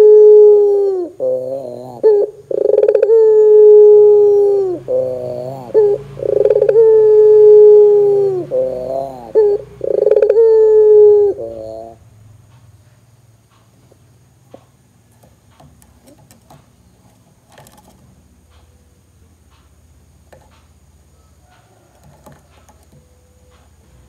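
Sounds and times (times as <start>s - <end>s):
dove cooing: 0.0s - 12.0s.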